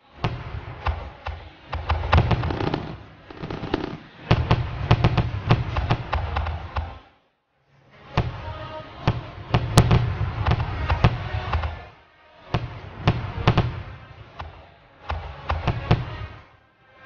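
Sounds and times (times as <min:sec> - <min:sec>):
firework bangs: 0:01.7 - 0:06.9, 0:12.6 - 0:14.5
rumbling crackling noise: 0:01.9 - 0:06.1.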